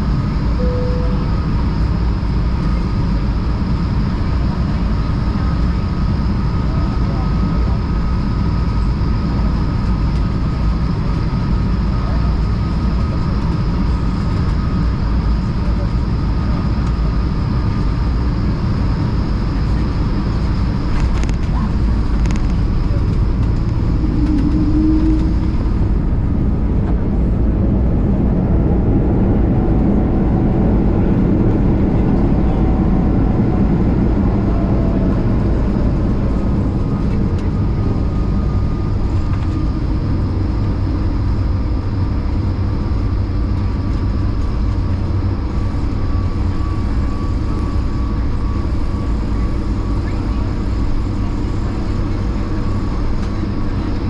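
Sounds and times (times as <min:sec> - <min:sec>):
reverse thrust whine: 0:00.0 - 0:02.4, 0:21.8 - 0:42.6
jet engine and airflow roar: 0:00.0 - 0:54.0.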